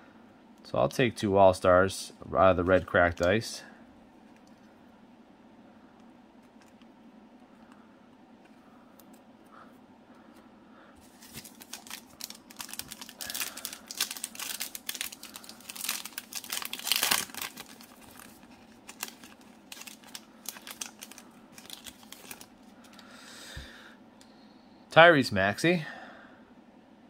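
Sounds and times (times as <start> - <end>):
foil wrapper crinkling: 11.0 - 23.0.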